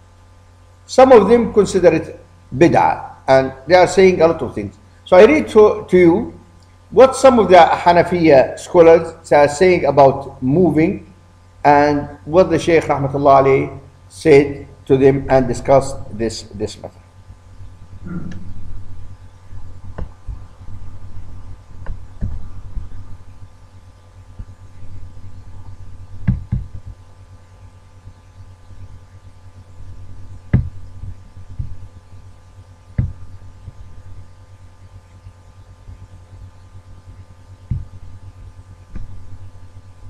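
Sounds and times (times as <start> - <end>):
steady low hum: 0.0 - 40.0
soft knocks and thumps: 26.2 - 26.9, 37.7 - 37.9.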